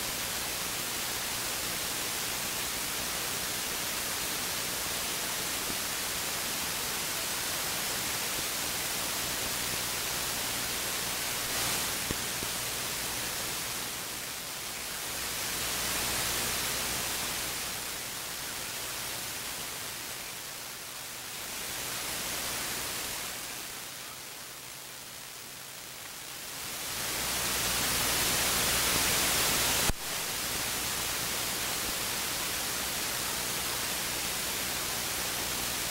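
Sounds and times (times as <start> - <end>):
radio static hiss: 0.0 - 35.9.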